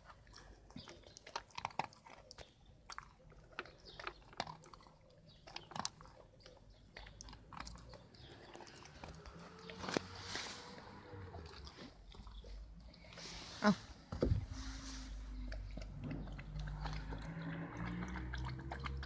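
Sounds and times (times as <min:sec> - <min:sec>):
dog chewing and crunching food: 0:00.0 - 0:19.0.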